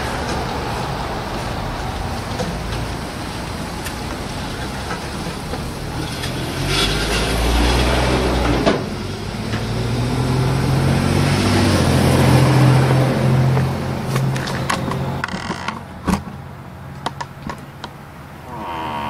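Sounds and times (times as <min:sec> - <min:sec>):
engine revving: 0:05.8 - 0:14.3.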